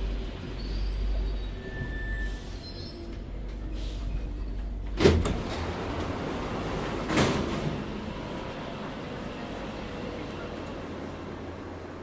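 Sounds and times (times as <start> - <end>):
train low hum: 0.0 - 12.0
train doors clunking open: 1.6 - 11.0.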